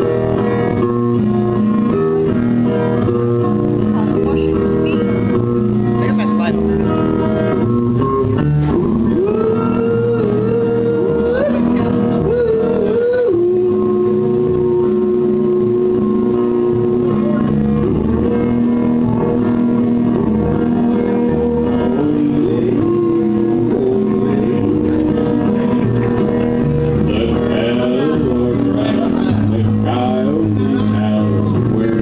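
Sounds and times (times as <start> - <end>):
backing track music: 0.0 - 32.0
man singing into microphone: 9.0 - 17.6, 21.6 - 25.5, 26.9 - 32.0.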